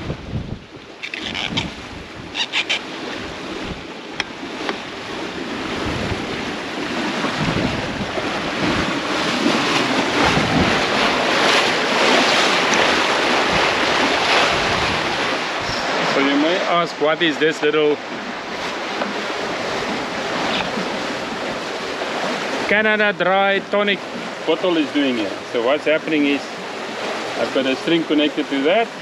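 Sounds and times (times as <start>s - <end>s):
wind buffeting microphone: 0.0s - 22.7s
water rushing and splashing: 0.0s - 29.0s.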